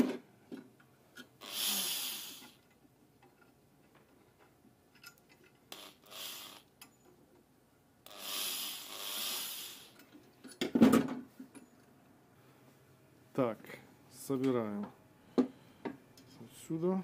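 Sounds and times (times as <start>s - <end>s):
electric drill whirring: 1.4s - 2.6s, 5.8s - 6.6s, 8.1s - 10.0s.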